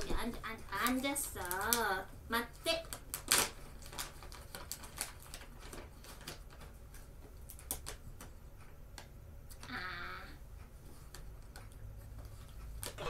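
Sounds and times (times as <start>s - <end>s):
packaging clicks and crinkles: 0.0s - 2.0s, 2.7s - 6.8s.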